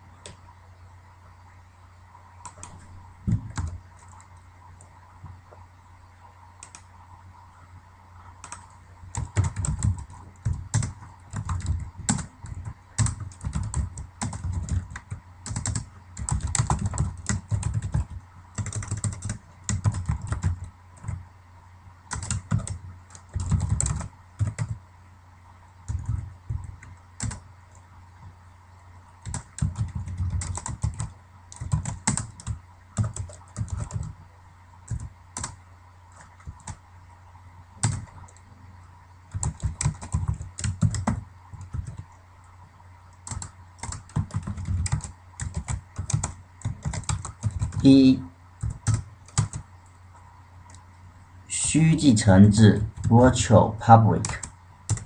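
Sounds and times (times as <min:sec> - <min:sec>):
faint electrical hum: 0:00.0 - 0:55.0
computer keyboard typing: 0:02.4 - 0:04.9, 0:06.6 - 0:06.9, 0:08.4 - 0:21.2, 0:22.1 - 0:24.8, 0:25.9 - 0:27.8, 0:29.2 - 0:34.2, 0:34.9 - 0:36.8, 0:37.8 - 0:38.5, 0:39.3 - 0:42.2, 0:43.1 - 0:48.0, 0:48.6 - 0:49.7, 0:52.9 - 0:53.2, 0:54.2 - 0:55.0.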